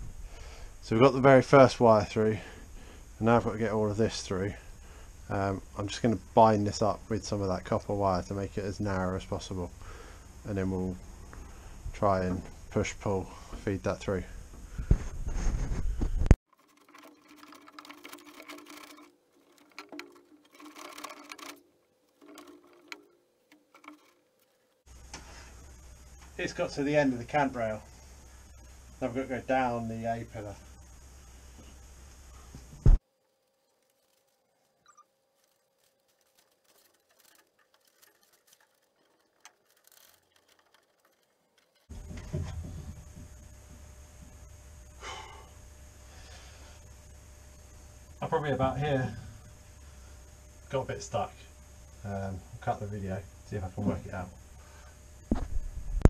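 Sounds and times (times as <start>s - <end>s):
wiring scraping on metal: 16.4s - 28.8s, 33.3s - 43.6s
faint clicks: 33.7s - 41.9s.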